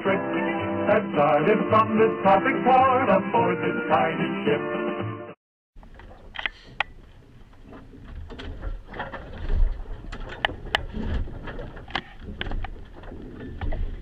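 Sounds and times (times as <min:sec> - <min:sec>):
sharp clicks and knocks: 0:05.8 - 0:14.0.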